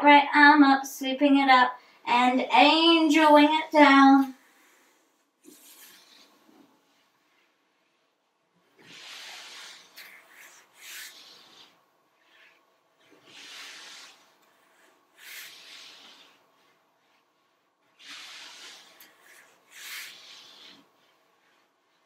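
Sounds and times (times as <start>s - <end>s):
arm brushing along yoga mat: 2.6s - 22.0s
person breathing: 4.4s - 6.6s, 8.8s - 17.2s, 18.0s - 21.7s.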